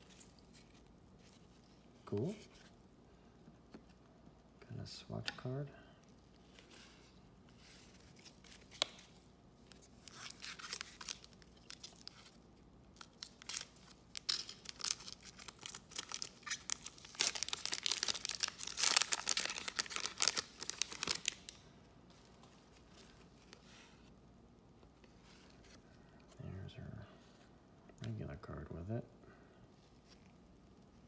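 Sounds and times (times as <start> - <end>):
wrapper tearing and crinkling: 13.0 - 21.6.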